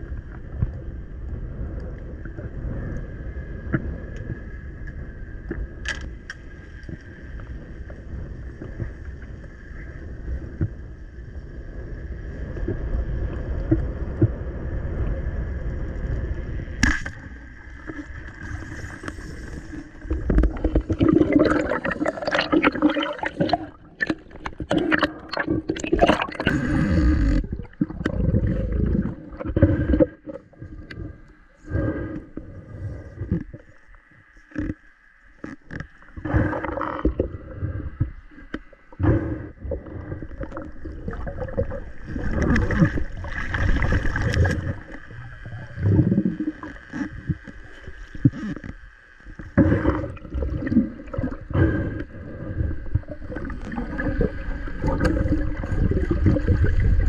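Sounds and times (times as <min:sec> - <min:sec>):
faint steady whine: 0:00.0 - 0:57.0
underwater hiss and rumble: 0:00.0 - 0:57.0
rushing and bubbling water: 0:11.6 - 0:34.8, 0:35.4 - 0:57.0.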